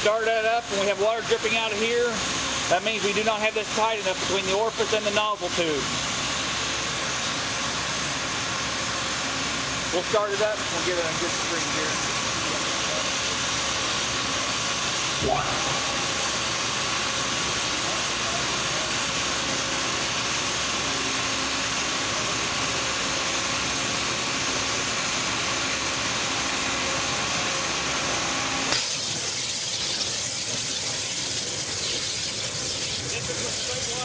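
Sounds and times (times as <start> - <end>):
waterjet hissing: 10.0 - 19.9, 28.7 - 34.0.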